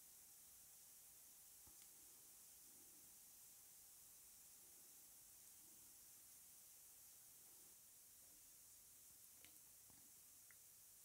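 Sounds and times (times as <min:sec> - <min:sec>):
faint tick: 0:01.6 - 0:02.0, 0:09.4 - 0:10.7.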